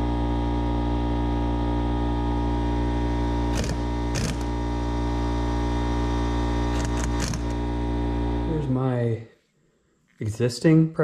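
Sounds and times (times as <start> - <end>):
impact wrench hammering: 3.5 - 4.6, 6.7 - 7.6.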